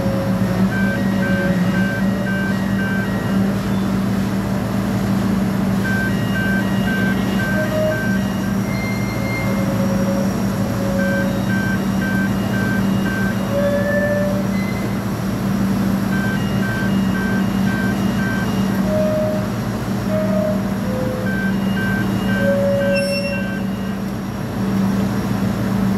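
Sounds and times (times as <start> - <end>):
diesel engine running: 0.0 - 25.9
quick warning alarm beeps: 0.7 - 4.0, 5.8 - 9.8, 10.8 - 15.0, 16.1 - 19.5, 21.2 - 24.0.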